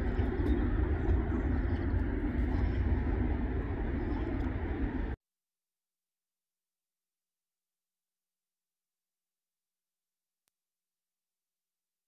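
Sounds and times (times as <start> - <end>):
deep outdoor rumble: 0.0 - 5.2.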